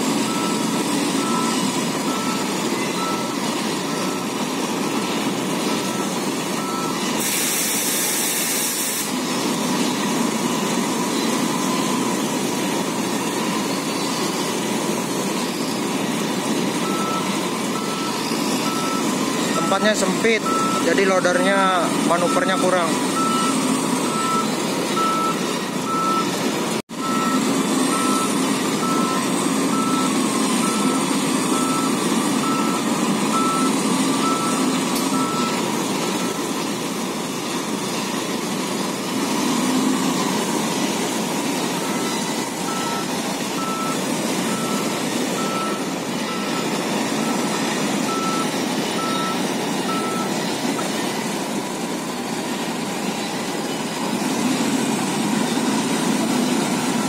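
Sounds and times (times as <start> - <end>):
heavy truck engines running: 0.0 - 57.0
reverse alarm beeping: 0.2 - 7.8, 16.8 - 26.4, 27.0 - 36.6, 41.6 - 50.6, 55.6 - 57.0.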